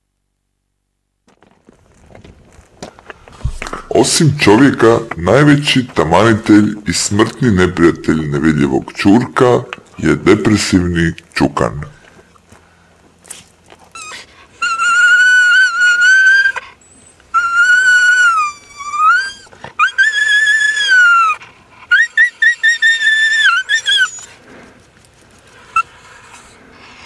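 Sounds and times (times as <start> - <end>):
dog whining and whimpering: 13.8 - 24.4, 25.7 - 27.0.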